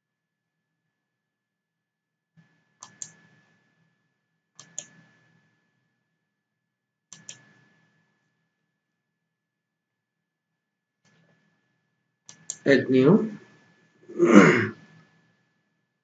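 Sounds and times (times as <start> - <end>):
computer mouse double clicks: 7.2 - 7.4.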